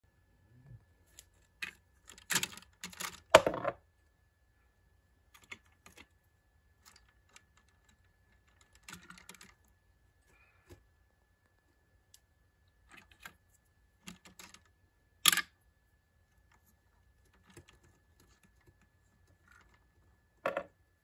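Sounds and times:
small plastic clicks: 6.8s - 9.7s, 14.0s - 15.5s.

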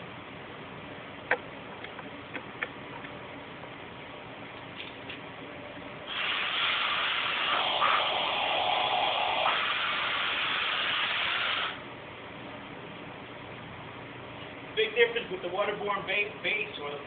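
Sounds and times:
compressed air hissing from air gun: 6.1s - 11.8s.

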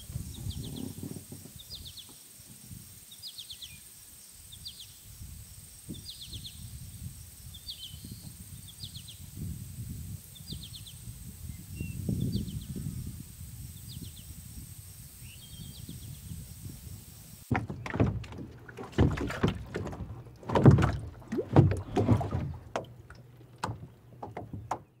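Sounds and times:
birds chirping: 17.5s - 25.0s
irregular thumps and knocks: 17.5s - 25.0s.

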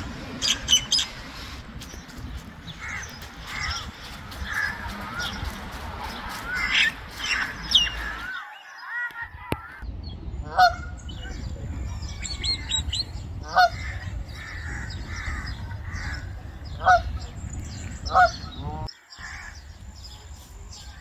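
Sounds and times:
small birds chirping: 0.3s - 21.0s
goose honking: 10.4s - 10.9s, 13.4s - 17.2s, 18.1s - 19.5s.

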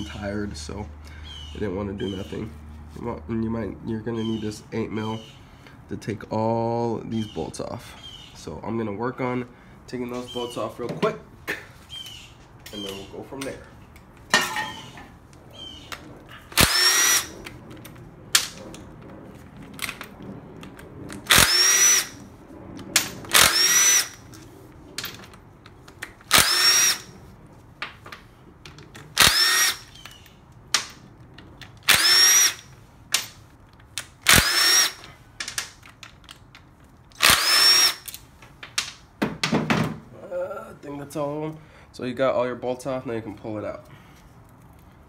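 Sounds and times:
power driver motor whine: 16.6s - 17.3s, 21.3s - 22.2s, 26.3s - 27.1s, 29.2s - 30.0s, 31.9s - 32.7s, 34.3s - 35.0s, 37.2s - 38.1s.

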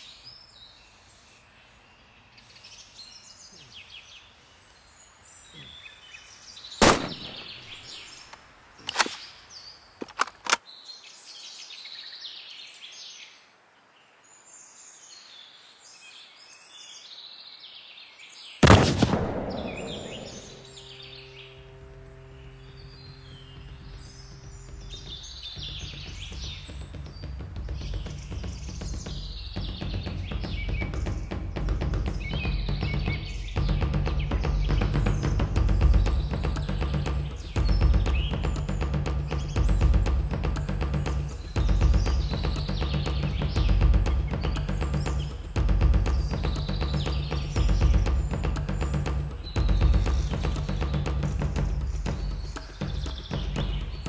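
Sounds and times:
songbirds chirping: 0.0s - 54.0s
rifle shot echoing: 6.8s - 7.8s, 18.6s - 20.8s
low steady hum: 18.6s - 26.3s
low rumble: 18.7s - 25.2s.

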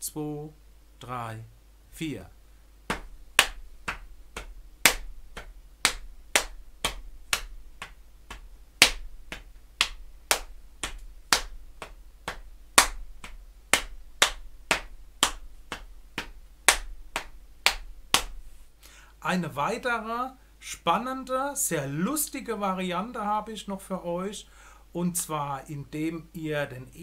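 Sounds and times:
hands slapping legs: 2.9s - 18.6s.

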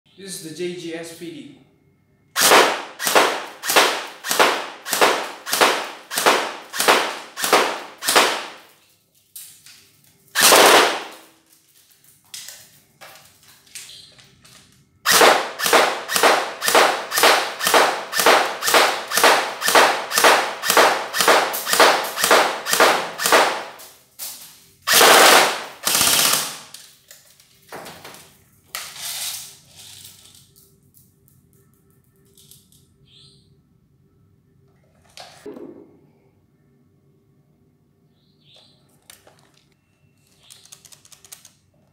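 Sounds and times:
airsoft gun firing single shots: 2.4s - 8.7s, 10.4s - 11.3s, 15.1s - 23.8s, 24.9s - 26.7s
airsoft gun full-auto burst: 2.4s - 8.7s, 10.4s - 11.3s, 15.0s - 23.8s, 24.9s - 26.7s.

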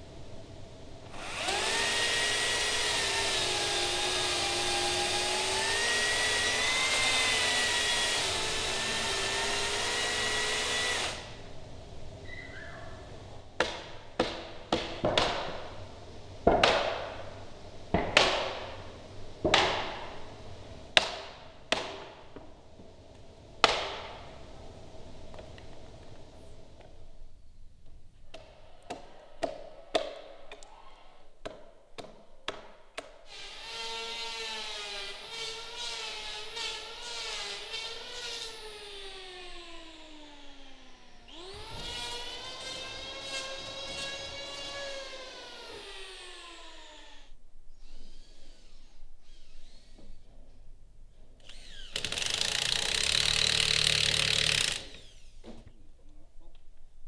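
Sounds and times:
power tool cutting wood: 1.1s - 11.4s, 33.3s - 50.0s, 51.4s - 55.4s
power tool motor whining: 1.2s - 11.4s, 51.4s - 55.4s
wooden timbers knocking: 13.6s - 15.6s.

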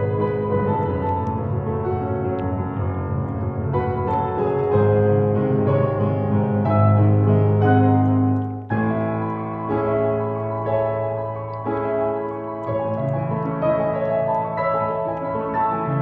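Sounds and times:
slow piano music: 0.0s - 16.0s.

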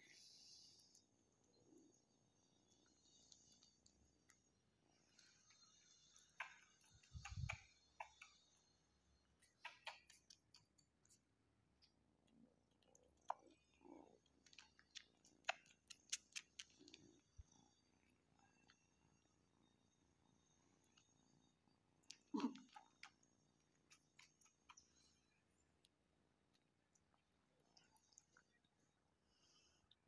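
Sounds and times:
kittens suckling wet clicks: 3.1s - 8.6s, 9.3s - 18.8s, 22.0s - 28.7s.

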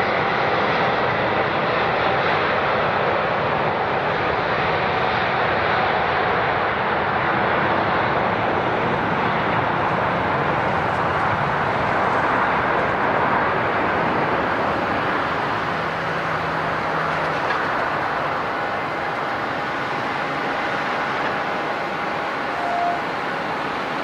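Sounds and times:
jet engines rushing: 0.0s - 24.0s.

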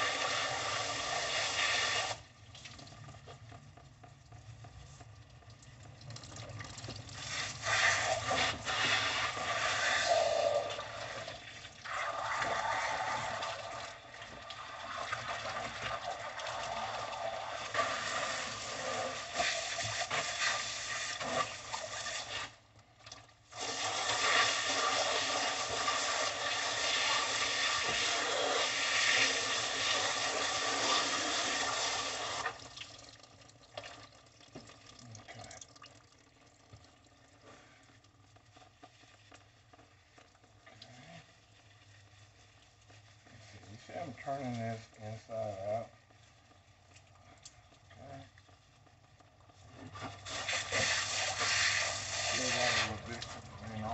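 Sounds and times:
hose nozzle spraying water: 0.0s - 2.3s, 7.2s - 22.6s, 23.5s - 32.6s, 49.9s - 53.9s.

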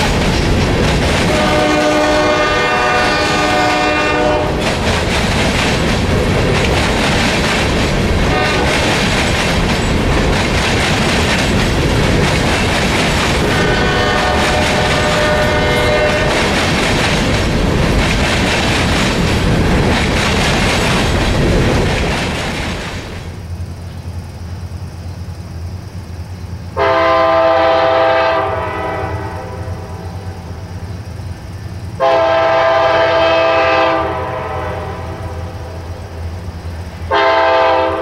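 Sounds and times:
train wheels rumbling on rails: 0.0s - 38.0s
locomotive horn: 1.3s - 4.7s, 8.3s - 8.8s, 13.4s - 16.6s, 26.8s - 30.2s, 32.0s - 35.8s, 37.1s - 38.0s.

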